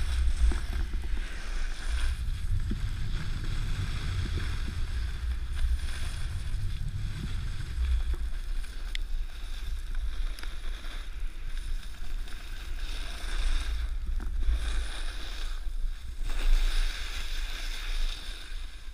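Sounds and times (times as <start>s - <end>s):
wind buffeting microphone: 0.0s - 10.1s
snowboard carving through snow: 0.0s - 18.9s.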